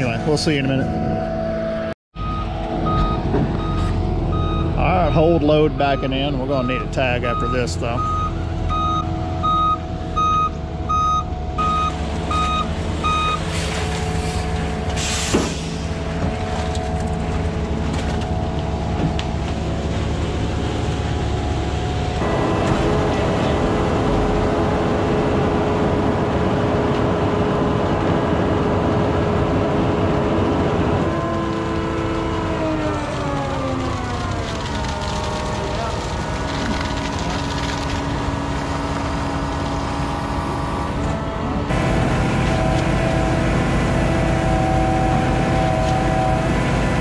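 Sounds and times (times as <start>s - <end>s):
diesel engine: 0.0s - 47.0s
reversing alarm beeping: 0.8s - 13.5s
air-brake hiss: 15.0s - 15.9s.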